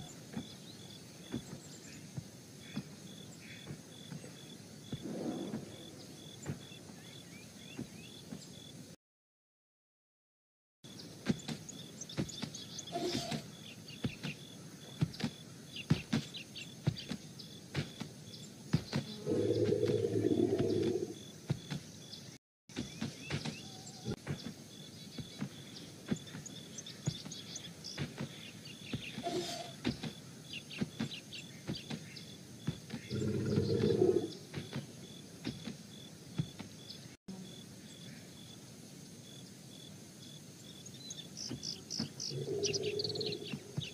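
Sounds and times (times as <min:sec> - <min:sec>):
faint steady insect tone: 0:00.0 - 0:09.0, 0:10.9 - 0:43.9
bird chirps: 0:10.9 - 0:35.7, 0:40.6 - 0:43.9.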